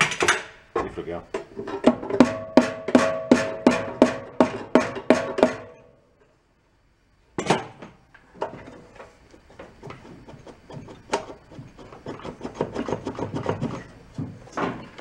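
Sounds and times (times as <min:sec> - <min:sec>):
engine cover scraping and grinding: 0:08.4 - 0:15.0.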